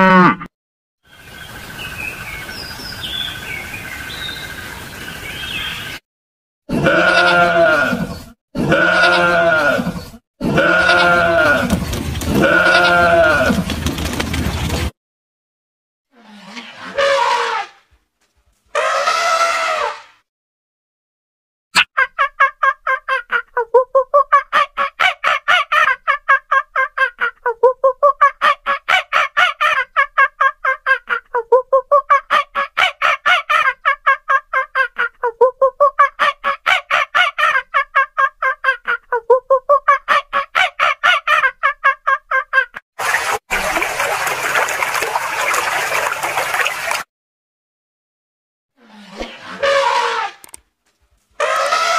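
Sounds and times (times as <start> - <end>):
rapid pulsing animal call: 48.9 - 50.4, 51.4 - 51.9.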